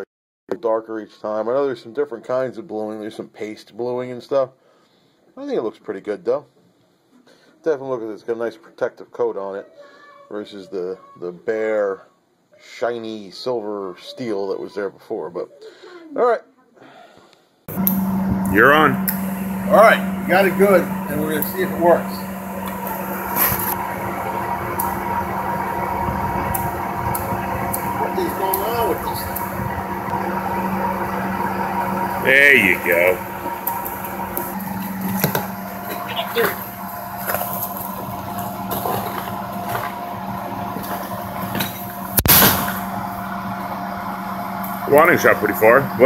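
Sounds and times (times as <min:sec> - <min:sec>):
air conditioner unit humming: 0:17.7 - 0:46.0
cannon firing bang: 0:42.2 - 0:42.8.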